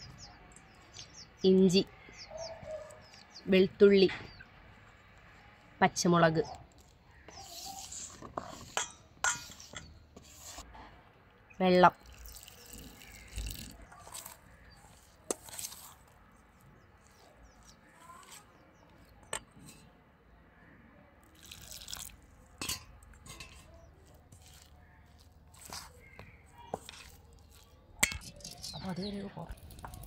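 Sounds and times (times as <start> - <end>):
spoon stirring wet batter: 6.7 - 10.7, 12.0 - 20.0, 21.2 - 30.0
water pouring into bowl: 12.0 - 13.7, 21.3 - 22.2
spoon clinking against metal bowl: 22.6 - 23.8.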